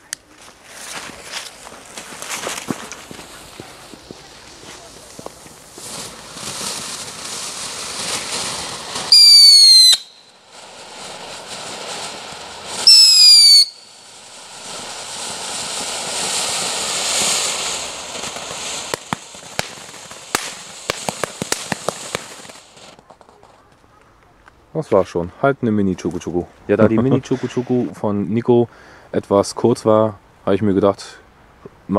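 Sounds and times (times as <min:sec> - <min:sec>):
sharp crackling pops: 0:00.0 - 0:24.6
hiss of fountain sparks: 0:00.8 - 0:23.0
shrill firework whistle: 0:09.1 - 0:10.3, 0:12.8 - 0:14.0.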